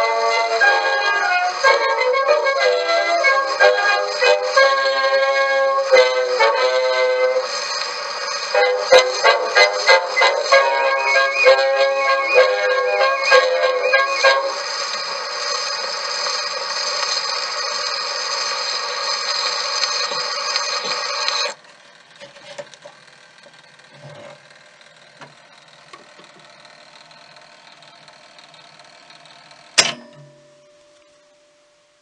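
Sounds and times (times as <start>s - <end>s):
dance band on phonograph: 0.0s - 29.9s
record surface hiss and crackle: 4.5s - 24.5s, 29.8s - 32.0s
sharp clunk: 29.8s - 30.4s.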